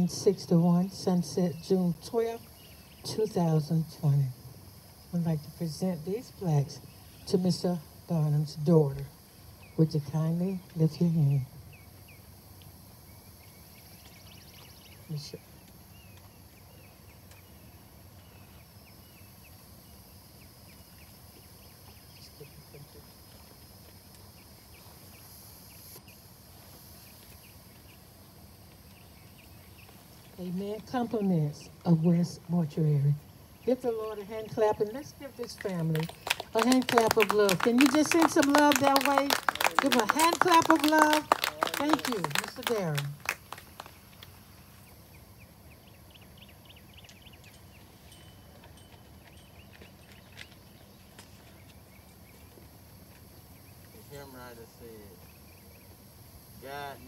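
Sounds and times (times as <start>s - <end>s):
high insect-like hiss: 0.0s - 57.0s
low steady background noise: 0.0s - 57.0s
small birds chirping: 9.4s - 23.6s, 27.0s - 56.0s
small bird chirping: 44.5s - 52.6s.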